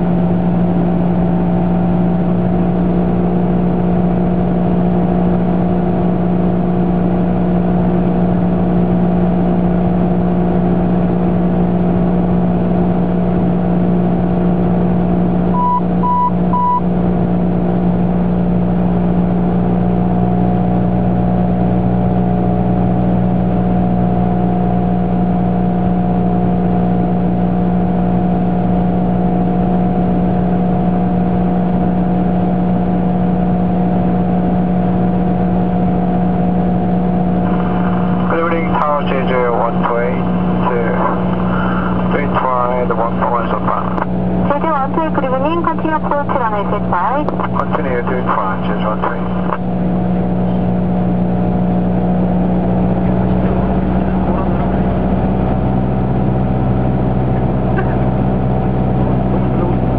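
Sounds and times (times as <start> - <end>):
aircraft engine and propeller droning: 0.0 - 59.9
short beeps: 15.5 - 16.9.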